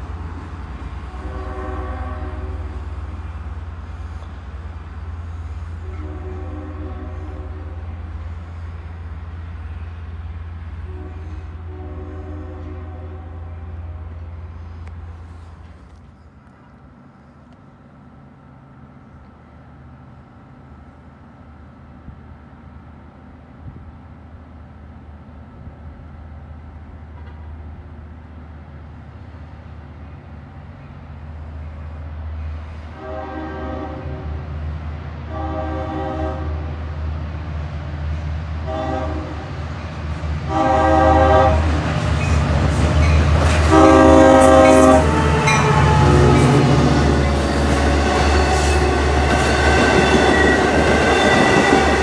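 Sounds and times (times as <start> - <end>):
train rumbling past: 0.0 - 52.0
train horn blasts: 1.0 - 3.1, 5.8 - 8.1, 10.8 - 15.4, 32.8 - 34.5, 35.3 - 36.8, 38.6 - 39.6, 40.4 - 41.9, 43.6 - 52.0
rolling-stock noise: 38.6 - 52.0.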